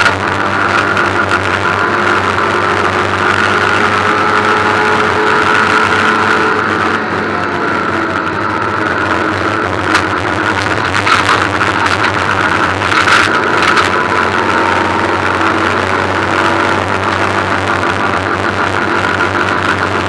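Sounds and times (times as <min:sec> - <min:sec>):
race car engine running hard: 0:00.0 - 0:20.0
road and wind noise: 0:00.0 - 0:20.0.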